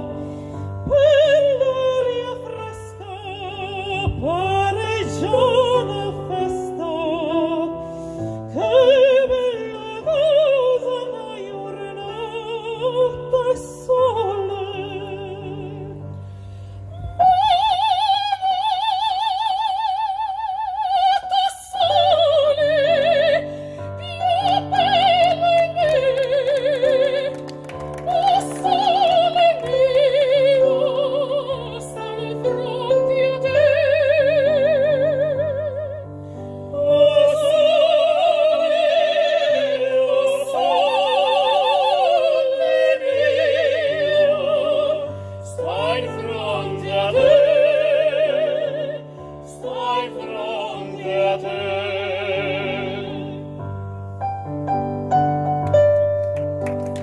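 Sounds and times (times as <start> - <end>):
operatic singing: 17.0 - 36.0, 36.7 - 53.6
keyboard accompaniment: 21.5 - 40.9, 42.3 - 57.0.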